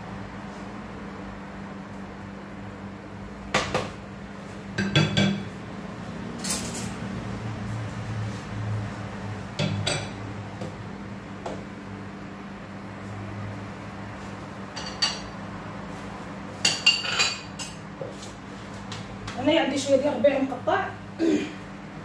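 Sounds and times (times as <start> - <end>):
steady low hum: 0.0 - 22.0
metal kitchenware clattering: 16.7 - 17.8.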